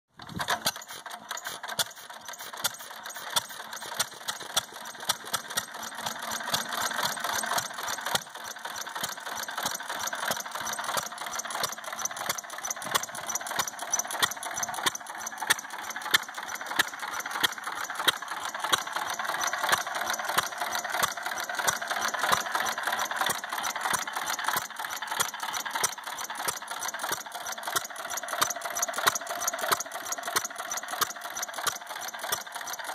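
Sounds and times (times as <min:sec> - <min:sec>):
stationary engine valve gear clicking: 0:00.2 - 0:32.9.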